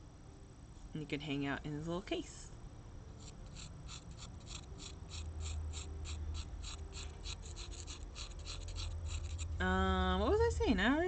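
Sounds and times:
clay tool scratching clay: 3.2s - 9.6s.

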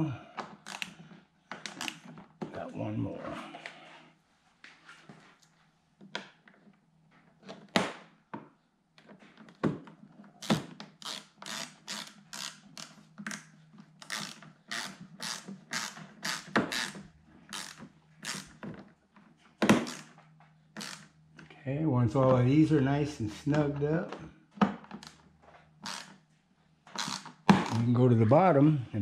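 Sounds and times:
ratchet wrench clicking: 10.4s - 13.0s, 14.0s - 18.5s, 20.8s - 21.1s, 25.8s - 26.1s, 27.0s - 27.9s.

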